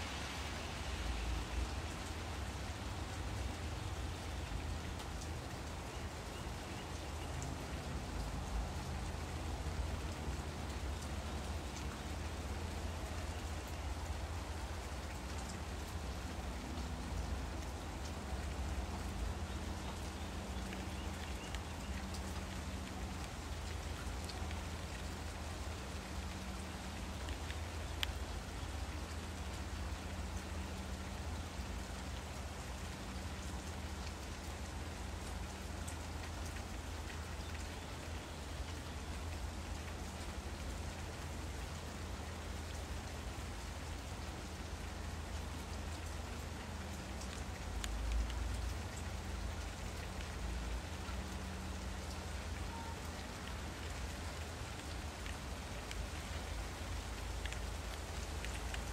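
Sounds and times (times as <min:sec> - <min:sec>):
steady hiss: 0:00.0 - 0:05.5
faint tick: 0:27.2 - 0:28.3, 0:45.3 - 0:50.4, 0:52.0 - 0:56.6, 0:57.2 - 0:58.9.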